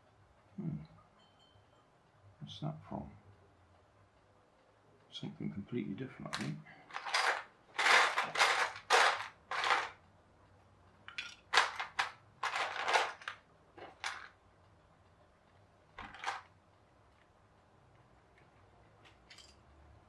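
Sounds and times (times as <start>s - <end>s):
plastic bricks clattering in tub: 6.4s - 10.0s, 11.1s - 14.3s, 16.0s - 16.4s.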